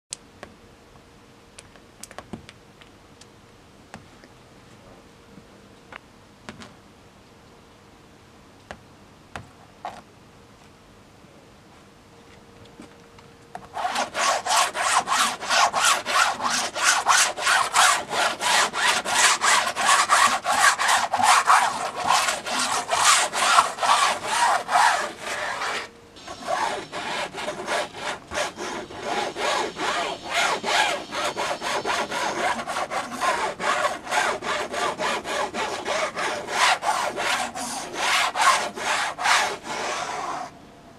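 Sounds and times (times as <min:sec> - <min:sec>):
sponge scrubbing wet paint: 0:13.8 - 0:40.5.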